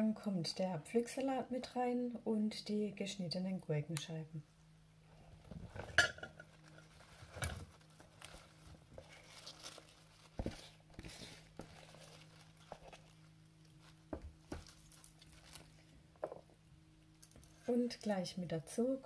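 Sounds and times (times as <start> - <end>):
lettuce rustling and crinkling: 5.4 - 16.4.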